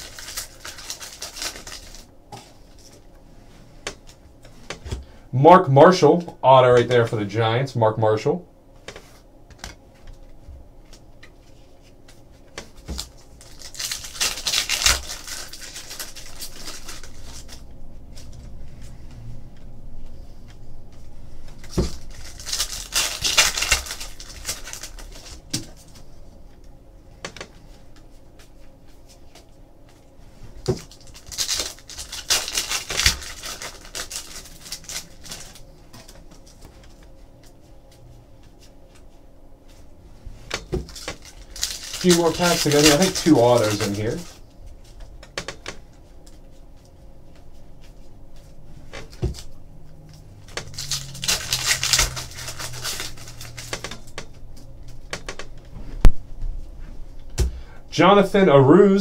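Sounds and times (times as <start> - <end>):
wrappers tearing and crinkling: 0.0 - 2.1, 12.8 - 17.7, 21.6 - 26.0, 30.7 - 36.6, 40.8 - 44.4, 50.2 - 54.2.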